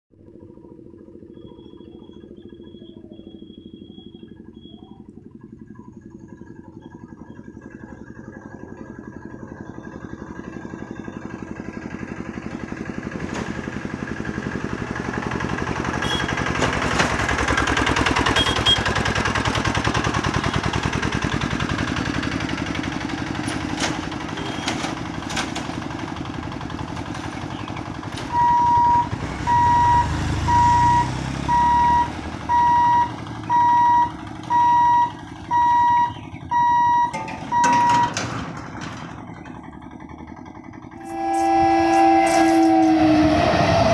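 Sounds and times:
small motor cart engine running: 0:00.3 - 0:43.9
level crossing warning beeps: 0:01.3 - 0:05.1, 0:28.2 - 0:38.3.

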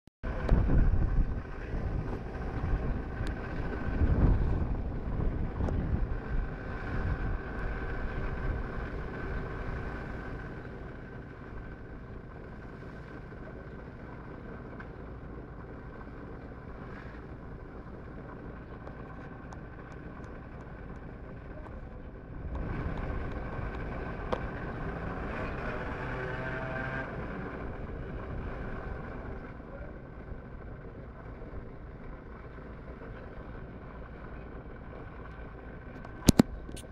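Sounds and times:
wind buffeting microphone: 0:00.2 - 0:12.4, 0:16.8 - 0:26.3
vehicle engine running: 0:00.2 - 0:36.9.

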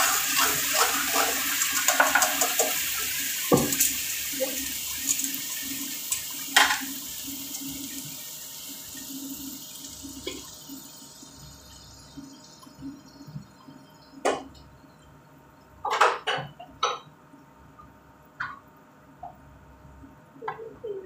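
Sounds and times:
spatula knocking and scraping a pan: 0:00.0 - 0:04.0
sauce sizzling in a frying pan: 0:00.0 - 0:14.4.

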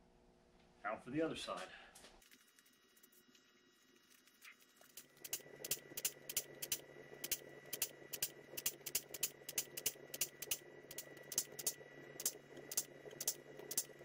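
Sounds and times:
faint hum: 0:00.0 - 0:14.0
pneumatic squeezer clicking: 0:05.2 - 0:13.9.

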